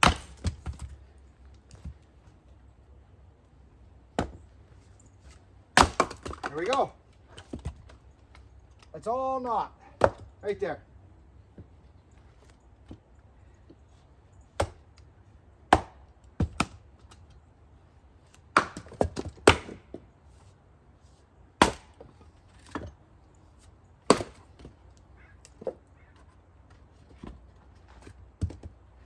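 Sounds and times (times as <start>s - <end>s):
axe chopping wood: 0.0s - 1.0s, 4.1s - 4.4s, 5.7s - 8.0s, 10.0s - 10.3s, 14.6s - 14.9s, 15.7s - 17.2s, 18.5s - 20.0s, 21.6s - 22.9s, 24.1s - 24.8s, 28.0s - 28.7s.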